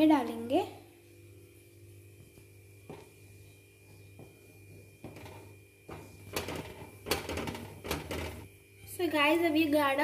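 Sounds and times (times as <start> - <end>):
low electrical hum: 0.0 - 10.0
wooden spatula scraping pot: 2.9 - 8.5.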